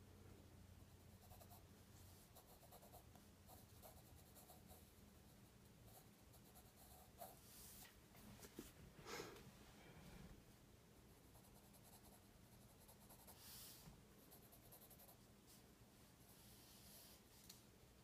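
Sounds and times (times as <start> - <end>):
low steady hum: 0.0 - 18.0
pencil scratching on paper: 2.2 - 5.0, 11.4 - 15.2.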